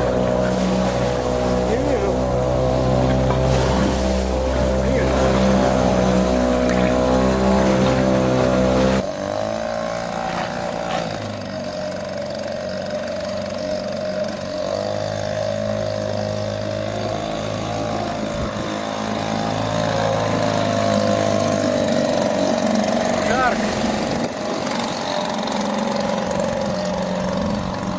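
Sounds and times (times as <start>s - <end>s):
outboard motor running: 0.0s - 27.9s.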